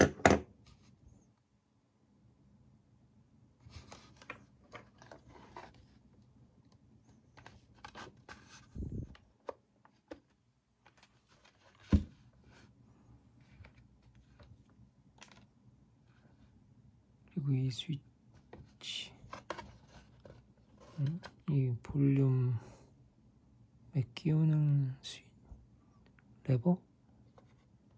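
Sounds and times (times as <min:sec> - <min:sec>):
plastic parts rubbing and scraping: 0:03.7 - 0:06.0.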